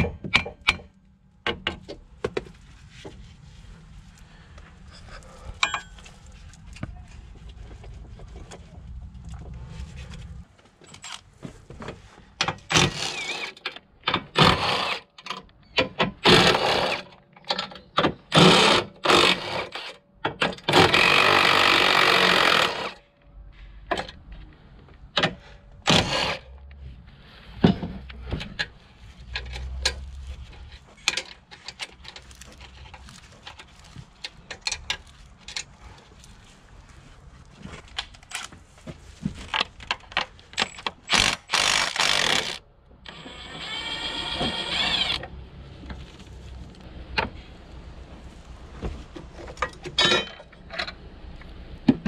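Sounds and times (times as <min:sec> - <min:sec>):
ratchet wrench ratcheting: 0:41.1 - 0:42.6.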